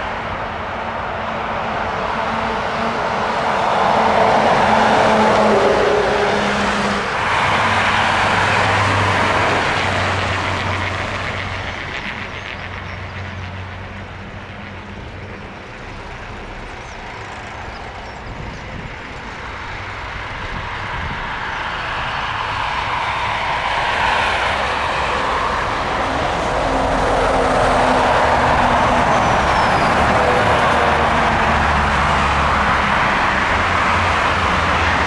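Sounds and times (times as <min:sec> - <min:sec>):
turboprop aircraft landing: 0:00.0 - 0:35.0.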